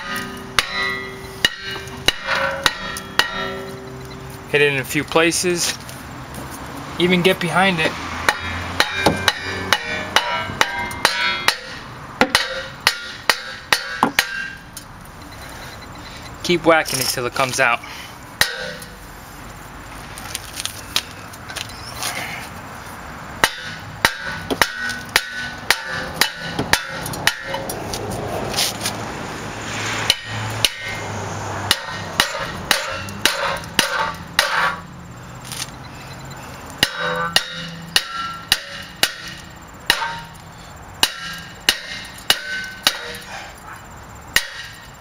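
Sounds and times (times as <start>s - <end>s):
hammer striking metal brake rotor: 0.0s - 4.8s, 8.2s - 14.9s, 18.4s - 19.0s, 23.4s - 27.8s, 30.0s - 35.0s, 36.8s - 43.4s, 44.3s - 45.0s.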